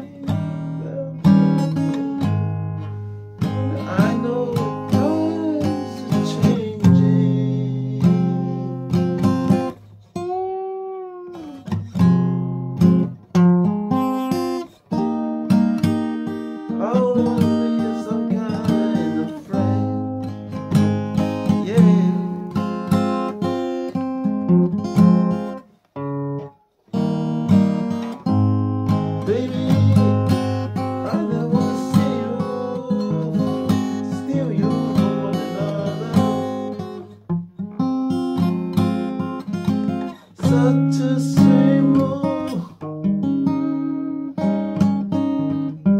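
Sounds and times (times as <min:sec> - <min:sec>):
acoustic guitar playing: 0:00.0 - 0:45.9.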